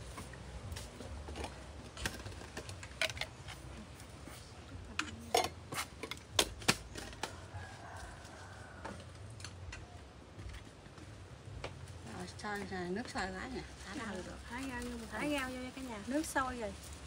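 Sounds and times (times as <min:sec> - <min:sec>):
utensils and dishes clinking: 0:05.0 - 0:07.3.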